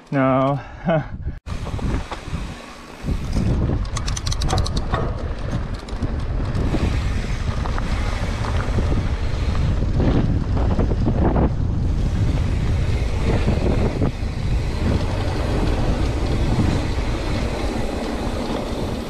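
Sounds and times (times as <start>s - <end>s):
wind buffeting microphone: 1.0s - 19.0s
tyres rolling on dirt: 1.5s - 19.0s.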